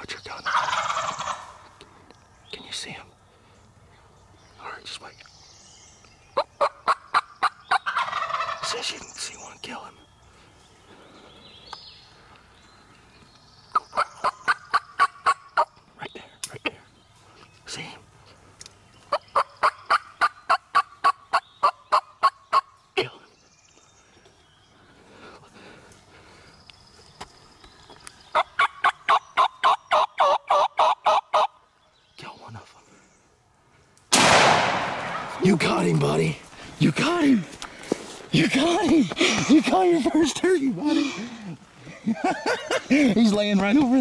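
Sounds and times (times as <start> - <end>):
turkey yelping: 0.5 - 1.7, 6.4 - 8.8, 13.7 - 15.7, 19.1 - 22.7, 28.3 - 31.6.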